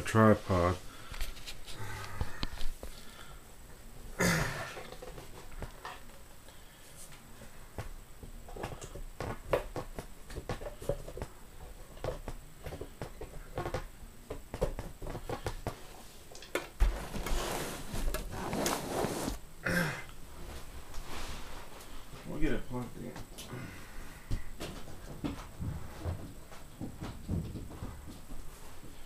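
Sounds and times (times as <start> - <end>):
rustling: 15.0 - 19.4, 20.3 - 22.7.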